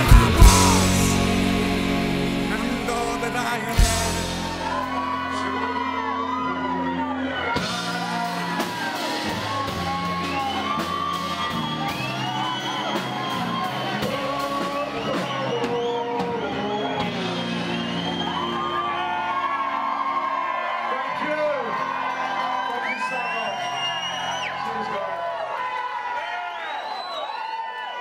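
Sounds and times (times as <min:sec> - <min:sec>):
person singing: 0:00.0 - 0:06.0, 0:13.9 - 0:17.3
grunge rock band playing: 0:00.0 - 0:20.2.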